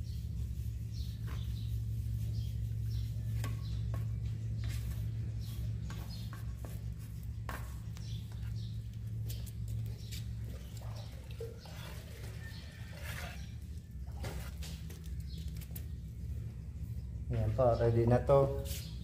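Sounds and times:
steady low hum: 0:00.0 - 0:19.0
grout mixing scrapes and clicks: 0:01.0 - 0:16.1.

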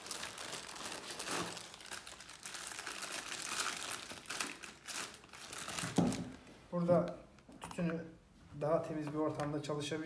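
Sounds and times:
plastic bags crinkling: 0:00.0 - 0:06.5.

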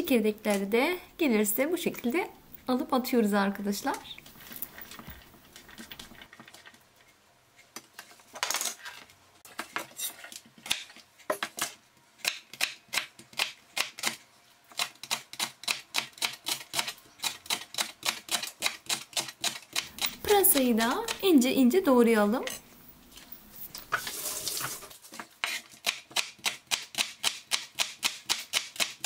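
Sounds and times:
knife chopping on plastic board: 0:25.5 - 0:29.0.

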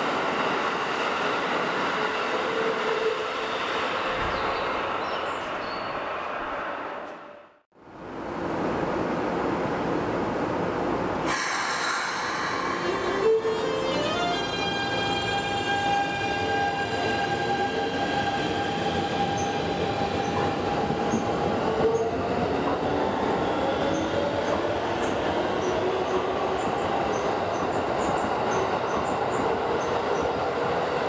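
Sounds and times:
wheels rumbling on rail: 0:08.0 - 0:31.0.

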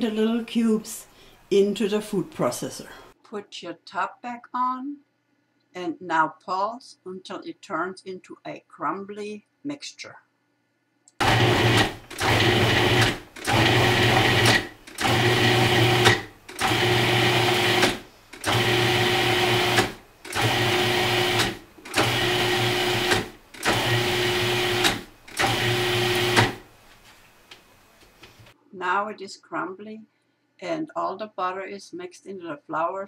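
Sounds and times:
food processor motor pulsing: 0:11.2 - 0:26.7.

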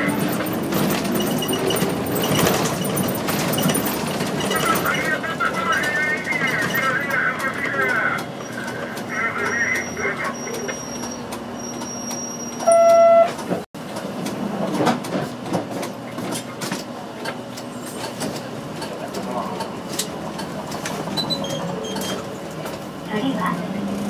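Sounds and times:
bus diesel engine running: 0:00.0 - 0:24.0
electronic buzzer tone: 0:12.6 - 0:13.3
faint short high beeps: 0:12.6 - 0:13.3.

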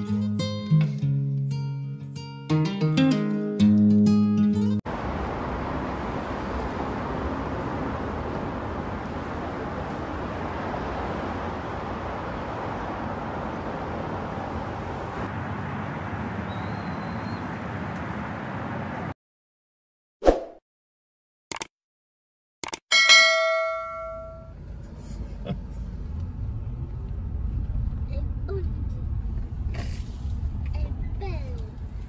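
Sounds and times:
strummed guitar: 0:00.0 - 0:04.8
car cabin road and engine noise: 0:04.8 - 0:19.2, 0:23.1 - 0:32.0.

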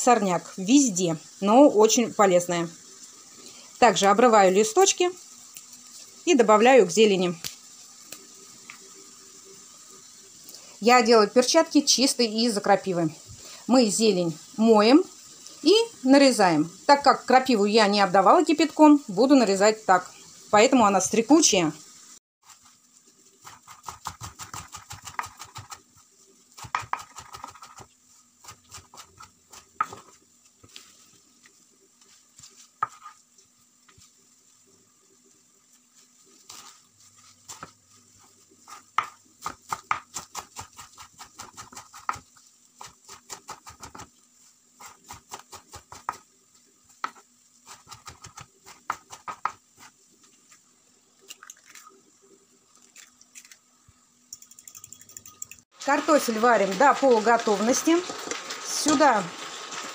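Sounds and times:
knife chopping on wooden board: 0:26.6 - 0:27.8, 0:38.7 - 0:42.2, 0:47.0 - 0:49.6.

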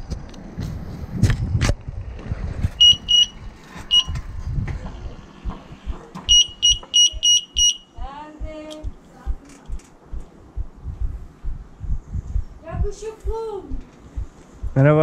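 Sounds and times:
electronic bicycle horn beeping: 0:02.8 - 0:04.2, 0:06.3 - 0:07.9.

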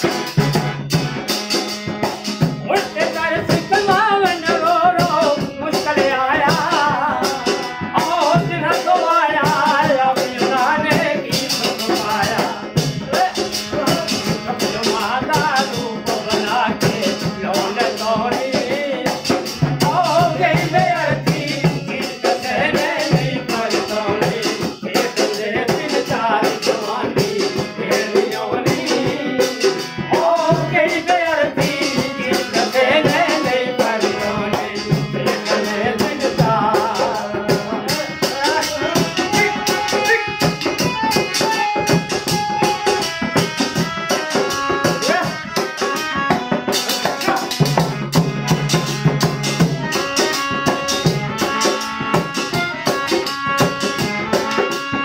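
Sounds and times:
rattling percussion: 0:00.0 - 0:55.0
tumbi and harmonium: 0:00.0 - 0:55.0
man singing: 0:02.6 - 0:46.3.

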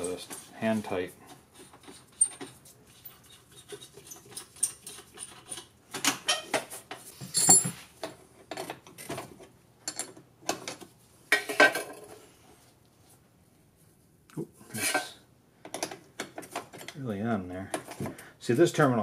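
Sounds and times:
wrench and metal hardware clinking: 0:07.2 - 0:07.8.

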